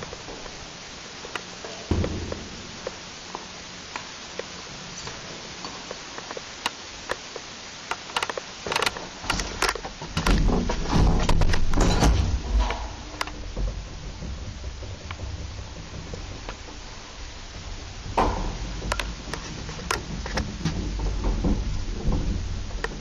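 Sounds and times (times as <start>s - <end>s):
lift clicks and clatter: 1.3s - 23.0s
lift low rumbling: 1.8s - 4.9s, 10.9s - 23.0s.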